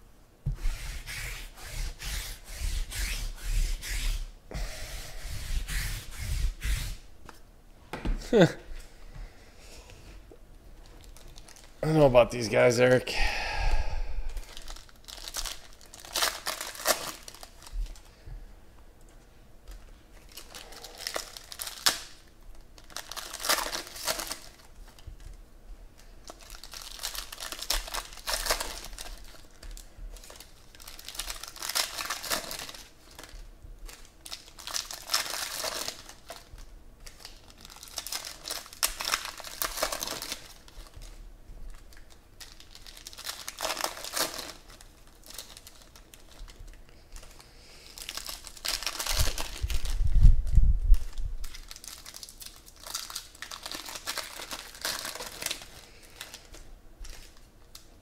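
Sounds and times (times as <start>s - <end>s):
foil wrappers crinkling and tearing: 10.8s - 11.8s, 14.4s - 18.2s, 19.7s - 25.4s, 26.0s - 50.2s, 50.9s - 58.0s.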